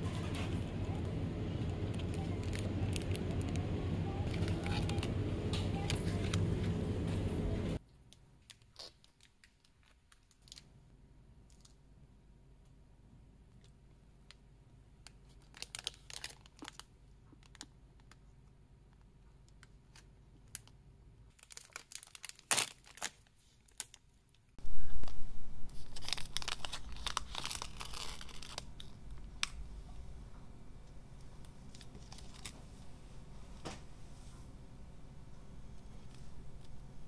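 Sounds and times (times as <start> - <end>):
plastic wrapper crinkling: 1.9 - 5.2, 8.4 - 10.7, 15.2 - 18.2, 19.6 - 29.6, 31.7 - 32.7
wrapper tearing open: 2.2 - 3.6, 15.4 - 17.7, 21.3 - 24.0, 25.0 - 29.5.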